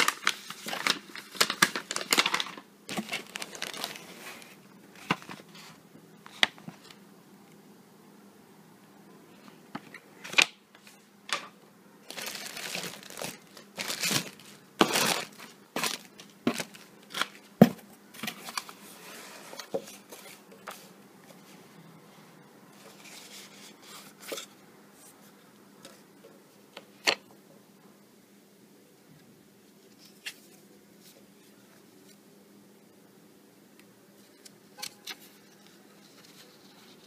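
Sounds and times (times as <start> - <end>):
packaging crinkling and tearing: 0.0 - 5.5, 12.0 - 17.4.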